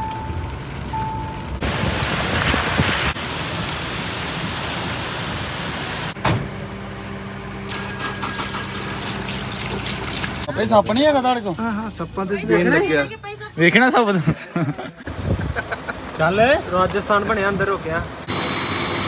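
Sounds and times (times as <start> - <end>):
heavy rain on moving car: 0.0 - 6.1.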